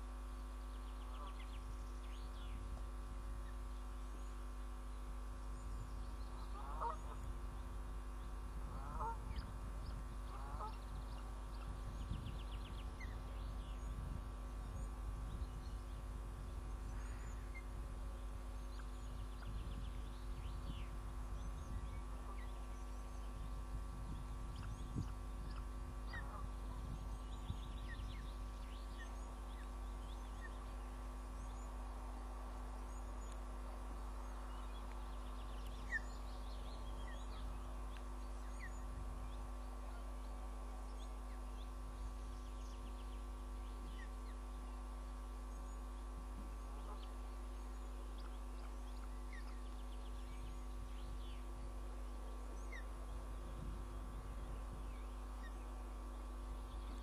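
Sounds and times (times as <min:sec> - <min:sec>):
steady tonal hum: 0:00.0 - 0:57.0
bird chirps: 0:16.7 - 0:31.8, 0:34.1 - 0:57.0.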